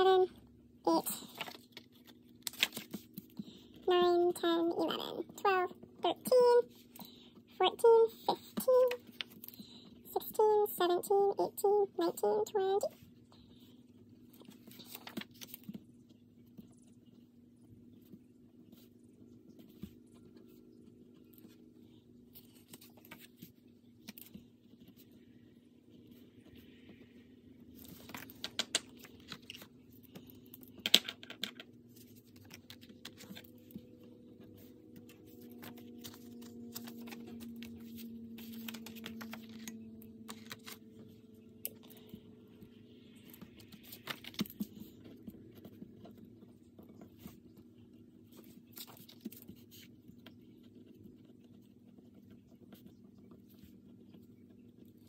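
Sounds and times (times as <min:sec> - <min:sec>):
faint low hum: 0:00.0 - 0:55.0
paper rustling: 0:00.9 - 0:03.7, 0:14.4 - 0:15.8, 0:22.3 - 0:25.2, 0:27.7 - 0:30.4, 0:31.9 - 0:33.8, 0:34.4 - 0:41.2, 0:43.2 - 0:46.2.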